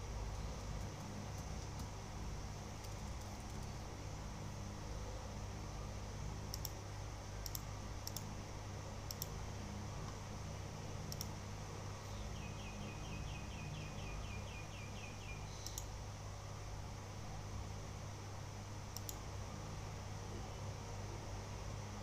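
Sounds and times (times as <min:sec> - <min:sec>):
steady low hum: 0:00.0 - 0:22.0
sharp clicks: 0:06.5 - 0:06.8, 0:07.4 - 0:08.3, 0:09.1 - 0:09.3, 0:11.1 - 0:11.4, 0:15.6 - 0:15.9, 0:19.0 - 0:19.2.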